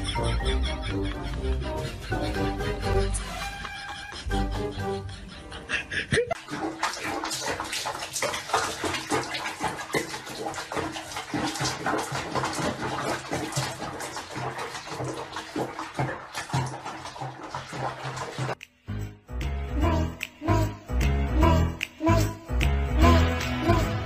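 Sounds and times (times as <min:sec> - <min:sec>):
bathwater sloshing and splashing: 0:06.3 - 0:18.6.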